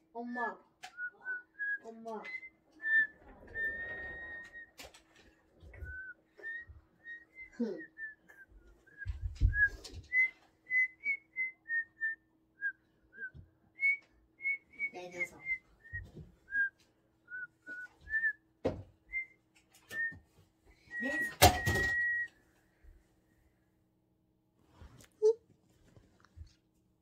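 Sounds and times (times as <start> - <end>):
person whistling: 5.8 - 18.4, 20.8 - 22.4.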